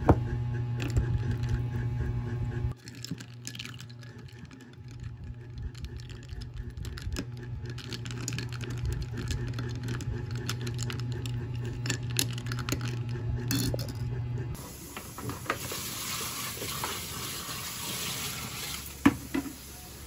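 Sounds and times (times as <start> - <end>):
low hum: 0.0 - 14.6.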